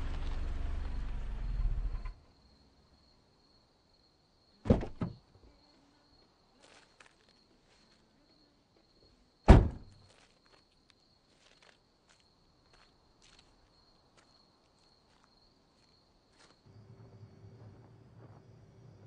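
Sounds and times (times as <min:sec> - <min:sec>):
car door opening clunk: 0:04.7 - 0:05.2, 0:09.5 - 0:09.9
car door shutting thud: 0:04.7 - 0:05.2, 0:09.5 - 0:09.9
light footsteps: 0:09.9 - 0:16.6.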